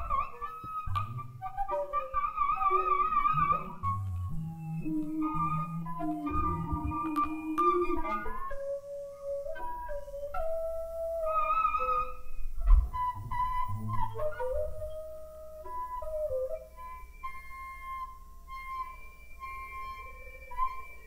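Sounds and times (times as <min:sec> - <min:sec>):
whistling feedback tones: 0:00.0 - 0:21.0
steady high tone: 0:03.3 - 0:08.7.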